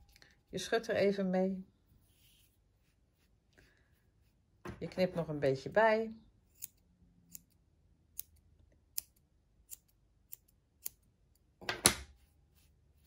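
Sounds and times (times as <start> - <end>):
scissors snipping yarn: 6.4 - 12.2.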